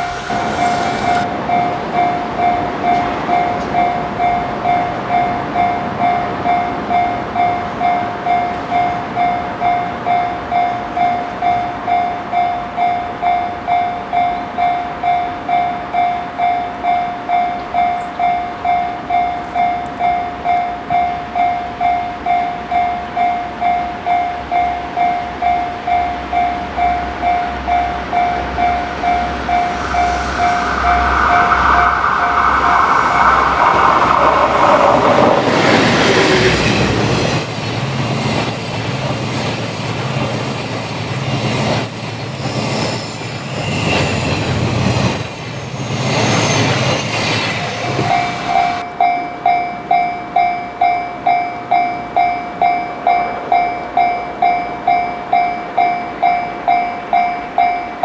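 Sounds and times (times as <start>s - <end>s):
train approaching: 0.0s - 58.0s.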